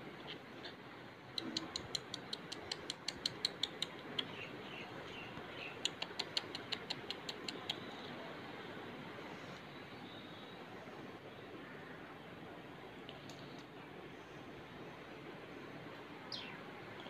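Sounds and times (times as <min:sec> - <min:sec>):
beaks pecking on tiled floor: 0:00.2 - 0:08.1
soft bird chirps: 0:16.3 - 0:17.0.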